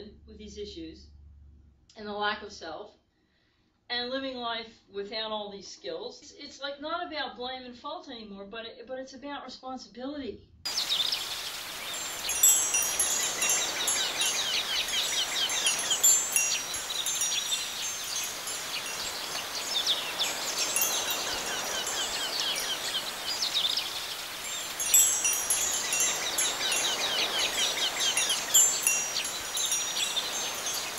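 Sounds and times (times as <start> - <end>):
wind chimes tinkling: 10.7 - 30.9.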